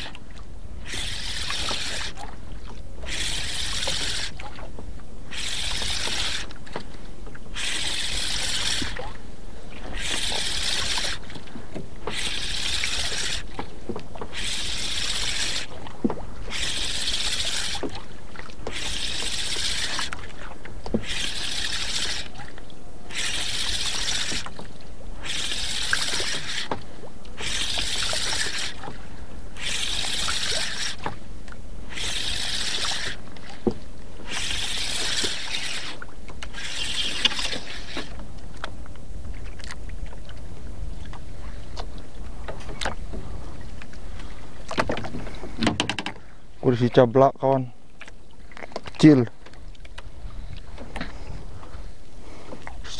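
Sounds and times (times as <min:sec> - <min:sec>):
fishing reel whirring: 0:00.0 - 0:00.2, 0:00.8 - 0:02.3, 0:03.0 - 0:04.5, 0:05.3 - 0:06.6, 0:07.5 - 0:09.2, 0:09.8 - 0:11.4, 0:12.0 - 0:13.6, 0:14.2 - 0:15.8, 0:16.4 - 0:18.0, 0:18.6 - 0:20.3, 0:21.0 - 0:24.6, 0:25.2 - 0:26.7, 0:27.4 - 0:29.0, 0:29.6 - 0:31.1, 0:31.9 - 0:33.4, 0:34.2 - 0:38.2.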